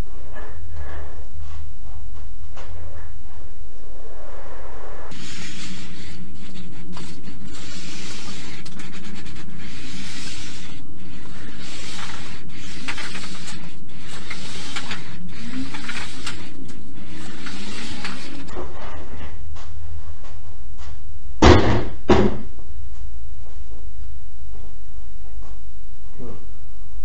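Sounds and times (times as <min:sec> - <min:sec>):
sheet metal roller scraping: 0:05.1 - 0:18.7.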